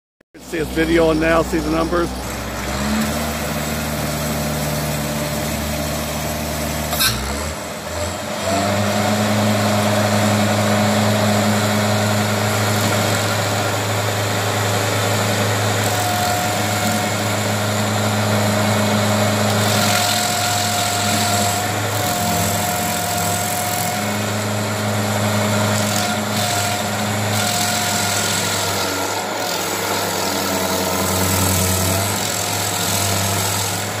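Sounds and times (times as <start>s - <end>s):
stump grinder grinding stump: 0.4s - 34.0s.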